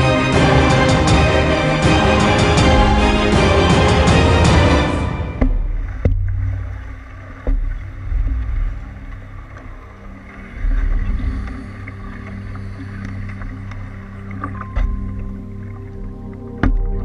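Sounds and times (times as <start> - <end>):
water and wind rumble: 0.0 - 17.0
paddle strokes in water: 4.9 - 17.0
paddle knocking canoe side: 5.3 - 8.9.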